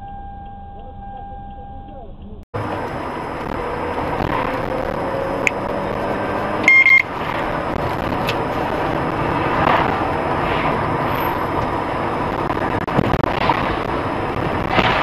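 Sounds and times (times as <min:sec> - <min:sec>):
car road and engine noise: 0:00.0 - 0:15.0
high-pitched electronic beep: 0:04.3 - 0:07.7.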